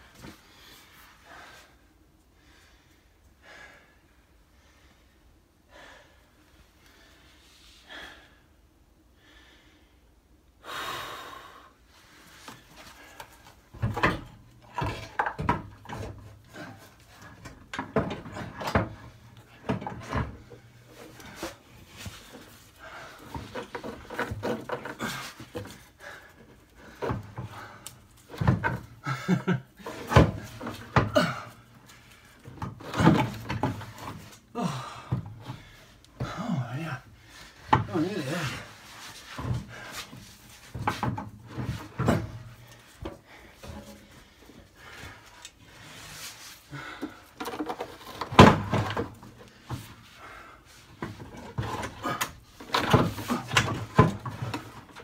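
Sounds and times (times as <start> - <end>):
man straining breaths and grunts: 12.8 - 47.7, 48.5 - 55.0
metal knocks and clunks: 13.7 - 21.6, 51.0 - 55.0.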